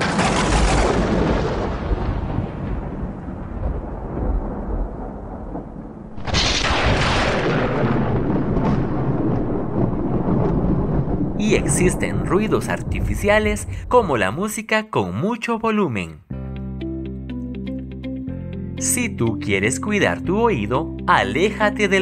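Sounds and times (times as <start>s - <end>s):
sharp thunder crack: 0.0s - 14.5s
thunder rumbling: 0.0s - 14.6s.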